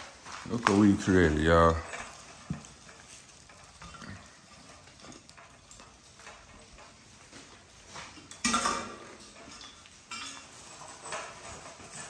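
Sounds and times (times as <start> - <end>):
puppies rustling in shavings: 0.0 - 5.2.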